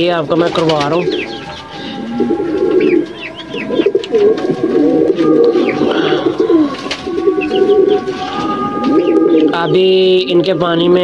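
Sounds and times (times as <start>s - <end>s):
pigeons cooing: 0.0s - 11.0s
high bird chirps: 1.0s - 4.2s, 5.5s - 10.3s.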